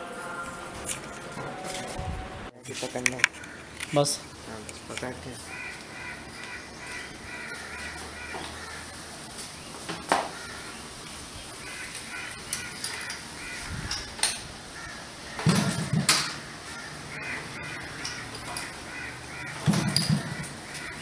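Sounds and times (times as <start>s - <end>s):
crows cawing: 3.3s - 3.8s, 5.4s - 9.0s, 10.1s - 10.9s, 11.6s - 21.0s.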